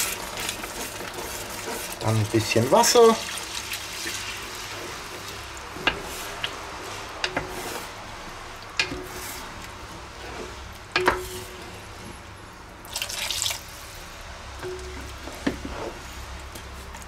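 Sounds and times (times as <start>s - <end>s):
water pouring into pot: 0.0s - 6.3s, 12.8s - 14.0s.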